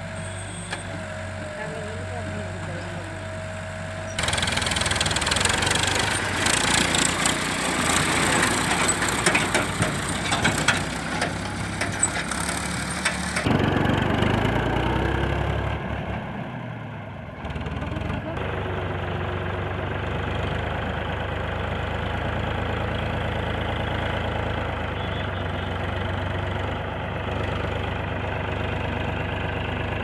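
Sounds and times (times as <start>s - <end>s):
diesel tractor engine running: 0.0s - 30.0s
trailer rattling and knocking: 4.2s - 13.6s.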